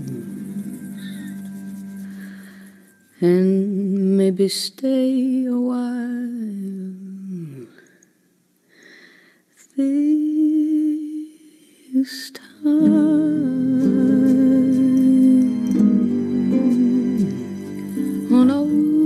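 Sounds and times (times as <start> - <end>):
slow music with wavering notes: 0.0 - 5.6, 12.6 - 19.0.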